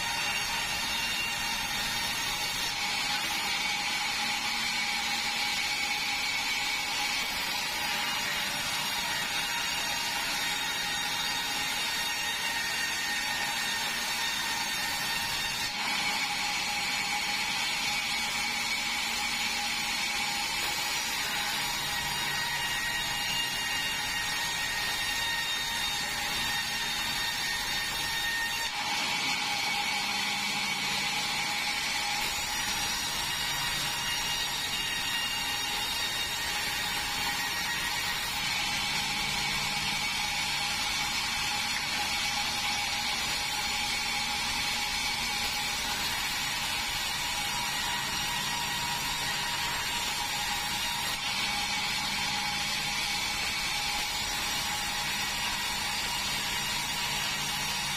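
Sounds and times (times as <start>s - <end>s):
hiss of sawing: 0.0s - 1.3s
band saw whining: 0.0s - 57.9s.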